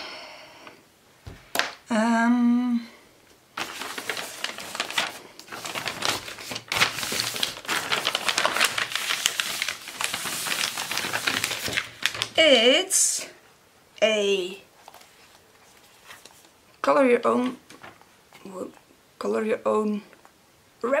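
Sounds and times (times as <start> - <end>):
person humming: 1.9 - 3.0
wrapping paper rustling: 3.5 - 12.6, 14.8 - 16.6.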